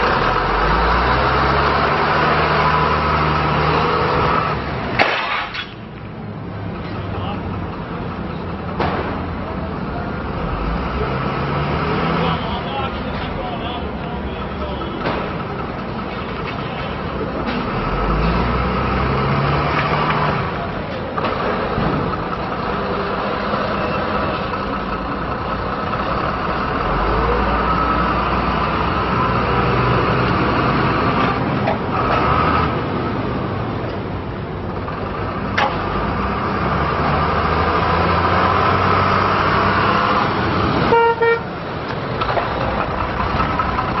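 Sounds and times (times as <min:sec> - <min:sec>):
diesel truck engine: 0:00.0 - 0:44.0
truck horn toot: 0:40.8 - 0:41.6.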